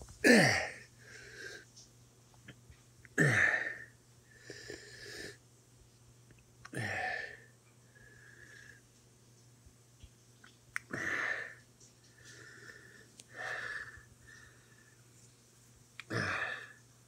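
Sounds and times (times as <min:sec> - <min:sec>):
hissing breaths: 0:10.8 - 0:15.2.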